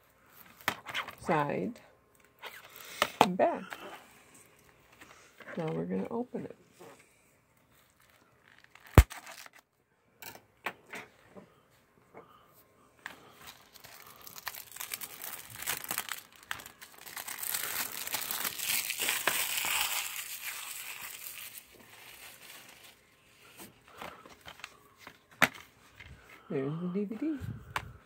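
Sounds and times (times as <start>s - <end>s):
cellophane crinkling: 7.8s - 9.6s, 13.2s - 25.2s.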